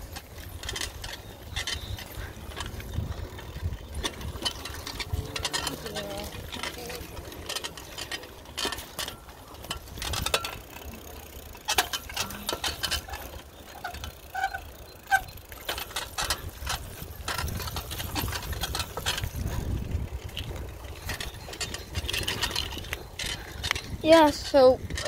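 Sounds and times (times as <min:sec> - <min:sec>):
wind on microphone: 0:00.0 - 0:07.9, 0:15.8 - 0:25.0
bike rattling on rough path: 0:00.0 - 0:25.0.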